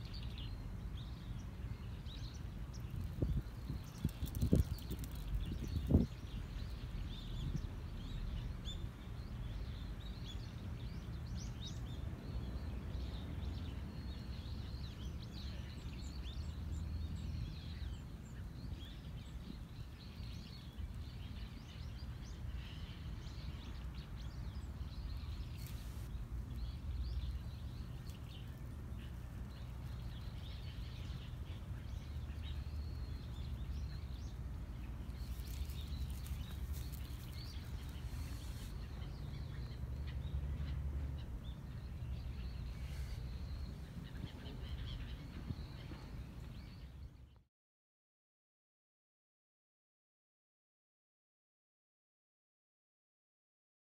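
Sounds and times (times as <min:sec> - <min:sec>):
low outdoor rumble: 0:00.0 - 0:47.4
small birds chirping: 0:00.0 - 0:47.5
rustling in dry grass: 0:25.3 - 0:26.7, 0:34.8 - 0:39.4.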